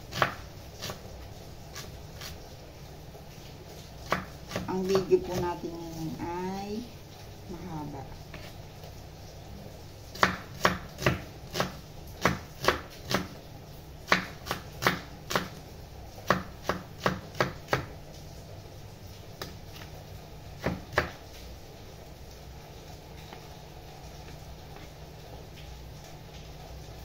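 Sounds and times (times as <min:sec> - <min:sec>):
knife chopping on wooden board: 0:00.1 - 0:01.0, 0:04.0 - 0:05.5, 0:10.2 - 0:13.3, 0:14.1 - 0:15.6, 0:16.2 - 0:17.9, 0:20.6 - 0:21.2.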